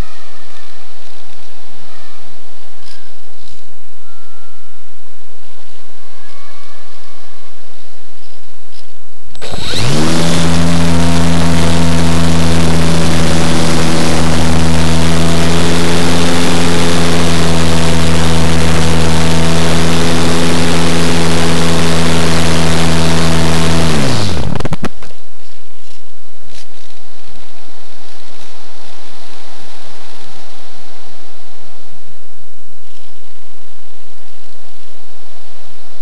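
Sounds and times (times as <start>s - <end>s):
electric motor and propeller: 9.4s - 25.2s.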